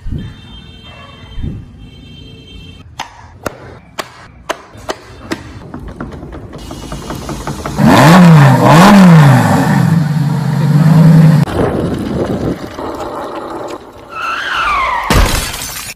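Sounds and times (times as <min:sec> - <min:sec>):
car engine revving: 0:07.5 - 0:12.6.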